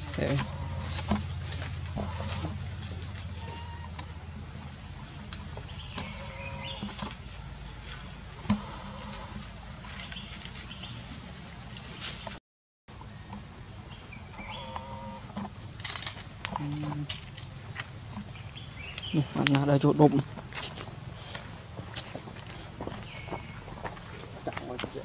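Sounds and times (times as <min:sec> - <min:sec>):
low hum: 0:00.0 - 0:12.4
insect drone: 0:00.0 - 0:25.0
short squeaky calls: 0:02.0 - 0:02.6, 0:03.3 - 0:04.1, 0:05.8 - 0:07.0.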